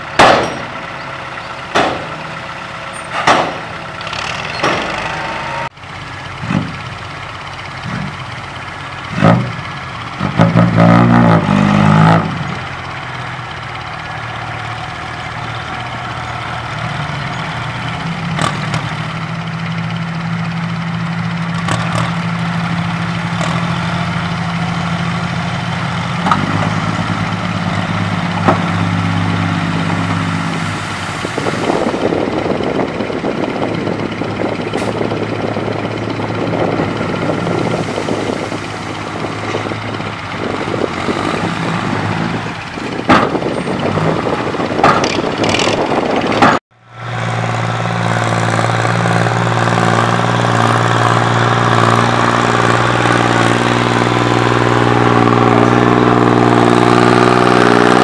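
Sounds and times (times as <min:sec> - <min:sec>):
truck engine revving: 0:00.0 - 0:58.0
sharp metallic clangs: 0:00.2 - 0:00.8.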